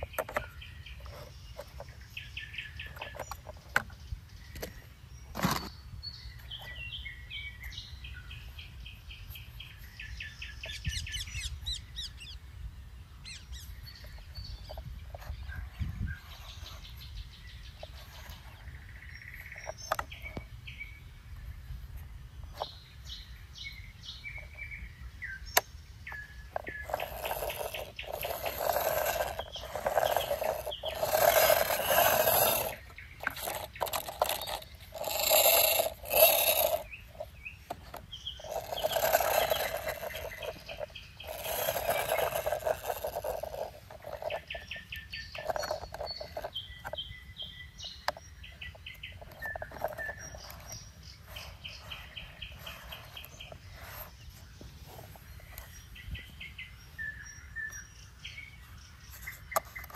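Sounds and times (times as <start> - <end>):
plastic toy scraping: 0.0 - 5.8, 13.7 - 20.5, 26.1 - 56.4, 59.1 - 59.9
birds chirping: 0.0 - 59.9
plastic toy clicking: 26.5 - 47.0.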